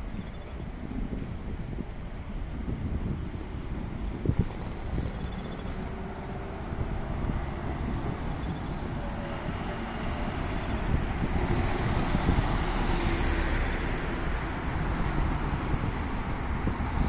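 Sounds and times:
road traffic rumble: 0.0s - 17.0s
cars passing: 5.6s - 17.0s.

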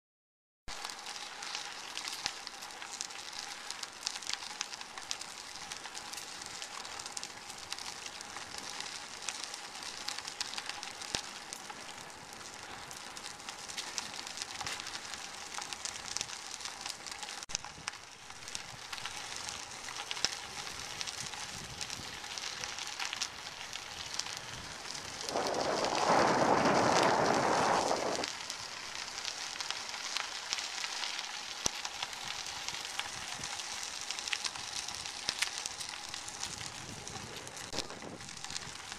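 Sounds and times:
bicycle tyres on gravel: 0.7s - 38.9s
loud rushing noise: 25.2s - 28.3s.

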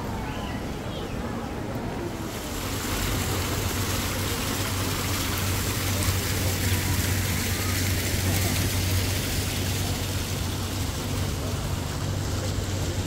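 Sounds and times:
fountain water splashing: 1.4s - 13.0s.

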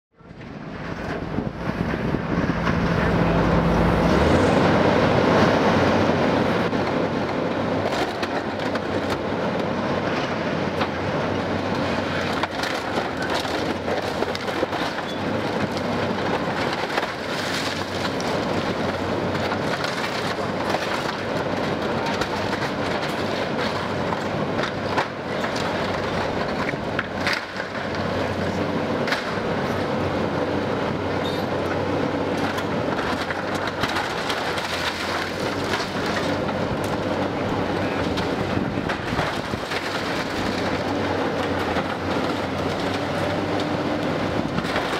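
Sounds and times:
excavator diesel engine: 0.1s - 44.9s
falling debris: 11.6s - 29.9s, 32.4s - 44.9s.

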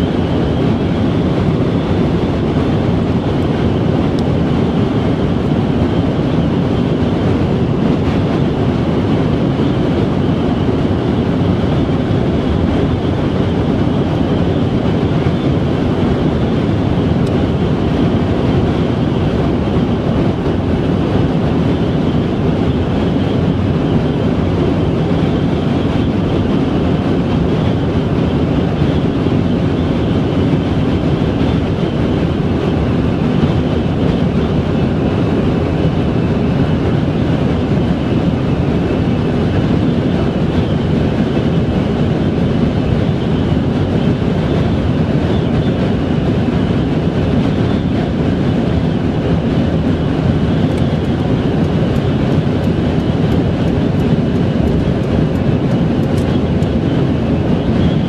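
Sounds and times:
road and wind noise: 0.0s - 58.0s.

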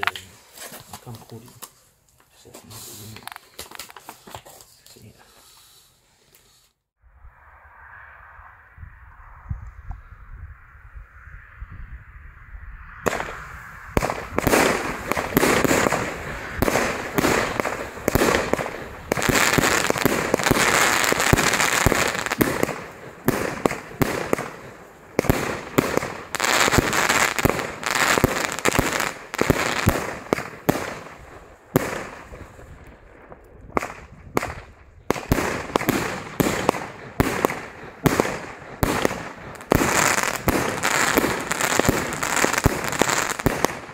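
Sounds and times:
firework launches and bursts: 13.0s - 43.9s.

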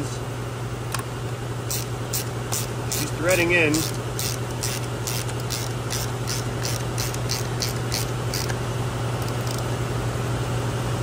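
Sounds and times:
low shop hum: 0.0s - 11.0s
ratchet wrench clicking: 1.7s - 8.6s, 9.2s - 9.7s.

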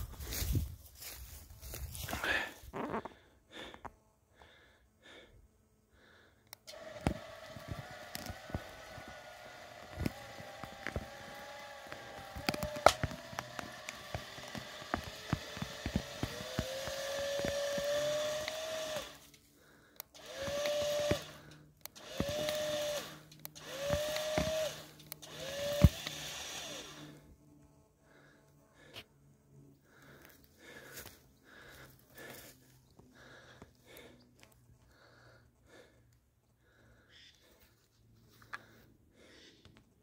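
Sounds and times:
electric winch motor whining: 6.5s - 27.4s
roots cracking and snapping: 6.7s - 26.4s.

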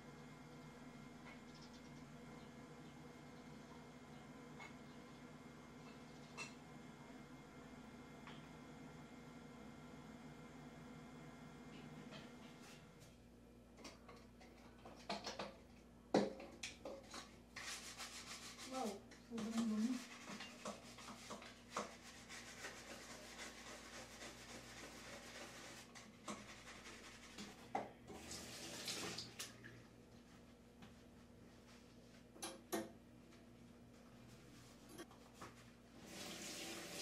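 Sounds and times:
brush scrubbing: 17.1s - 27.6s.

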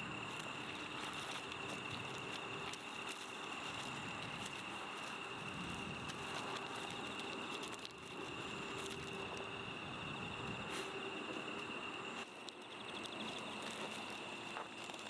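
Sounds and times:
gravel crackling and scraping: 0.0s - 15.0s
high insect drone: 0.0s - 15.0s
small clicks: 11.3s - 15.0s.

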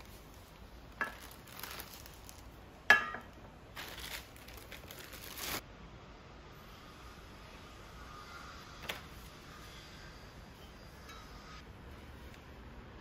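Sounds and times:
plastic wrapping crinkling: 0.0s - 5.6s.

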